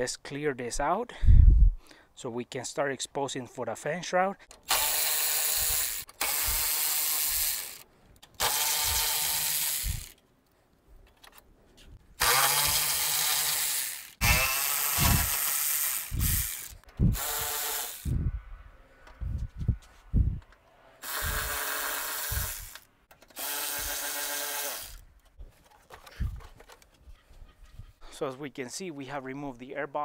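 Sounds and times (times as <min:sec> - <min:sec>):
cordless ratchet spinning bolts: 0:04.5 - 0:10.2, 0:12.2 - 0:18.2, 0:20.5 - 0:25.0.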